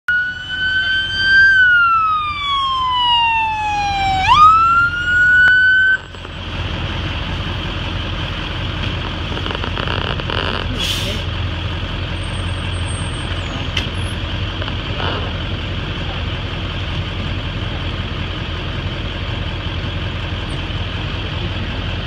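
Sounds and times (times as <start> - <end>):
fire engine siren wailing: 0.1 - 6.4
low engine rumble: 0.1 - 22.0.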